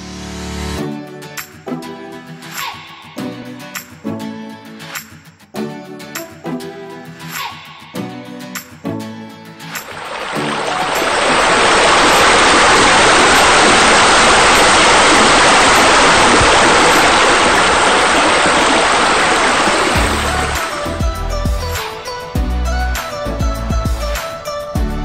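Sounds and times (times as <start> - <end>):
music: 0.0 - 11.2, 19.9 - 25.0
rushing water: 9.8 - 21.0.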